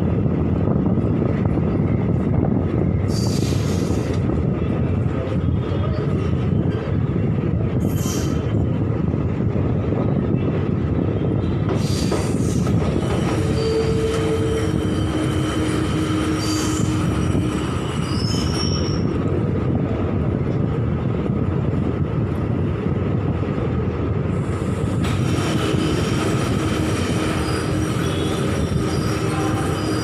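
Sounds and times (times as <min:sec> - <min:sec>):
train wheels rumbling on rails: 0:00.0 - 0:30.0
thin wheel squeals: 0:13.1 - 0:15.5, 0:18.0 - 0:19.1.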